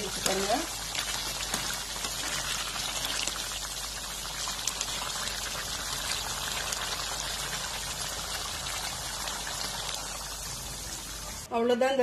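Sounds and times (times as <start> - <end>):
thick gravy bubbling in a pot: 0.0 - 11.5.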